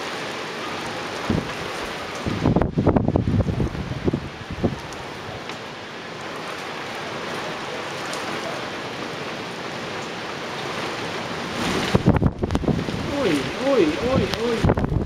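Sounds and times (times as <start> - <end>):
heavy rain on rooftops: 0.0 - 15.0
wind gust on microphone: 1.1 - 5.4, 11.0 - 15.0.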